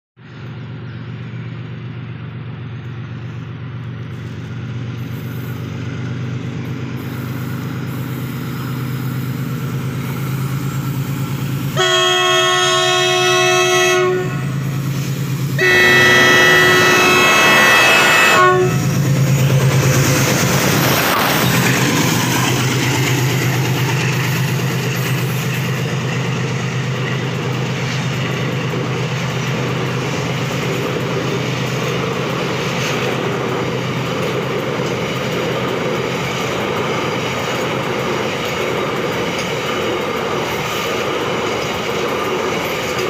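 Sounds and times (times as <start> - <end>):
diesel locomotive engine drone: 0.2 - 43.0
train wheel and rail noise: 0.2 - 43.0
locomotive horn blasts: 11.8 - 14.7, 15.6 - 18.9.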